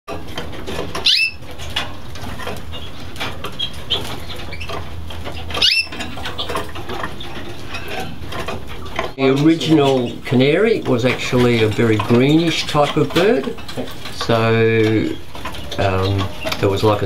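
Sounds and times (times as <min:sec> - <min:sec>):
canaries chirping: 0:00.1 - 0:17.0
loud rising bird calls: 0:01.0 - 0:01.4, 0:05.5 - 0:06.6.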